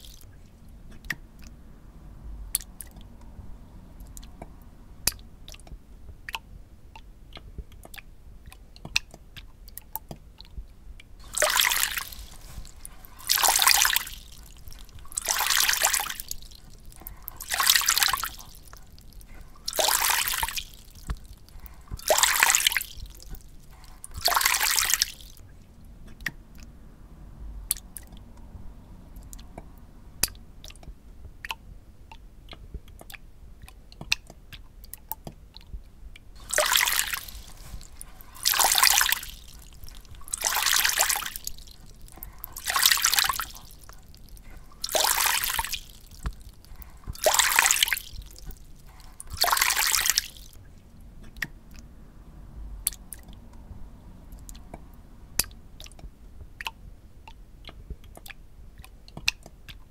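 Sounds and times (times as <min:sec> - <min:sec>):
water dripping: 0:00.0 - 0:01.7, 0:02.4 - 0:26.9, 0:27.5 - 0:59.9
hissing rushes of water: 0:11.2 - 0:25.4, 0:36.4 - 0:50.6.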